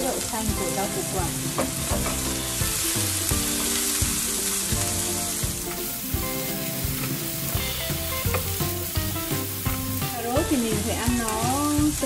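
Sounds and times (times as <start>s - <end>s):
vegetables sizzling in oil: 0.0s - 12.0s.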